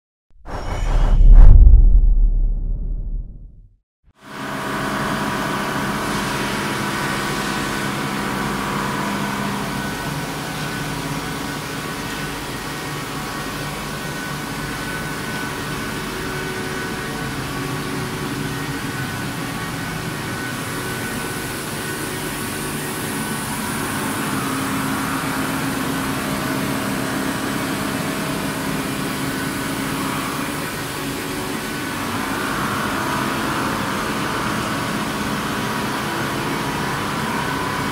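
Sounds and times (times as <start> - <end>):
steady tones: 0.5 - 3.7.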